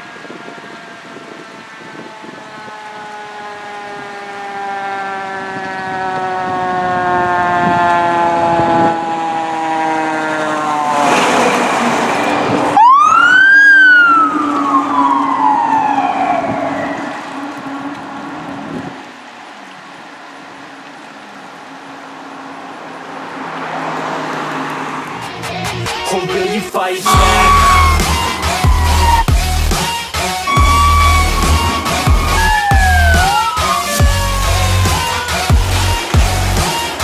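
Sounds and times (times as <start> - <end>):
fire truck siren wailing: 0.0 - 22.6, 26.0 - 37.0
truck engines running: 0.0 - 37.0
loud rush of passing truck: 8.4 - 37.0.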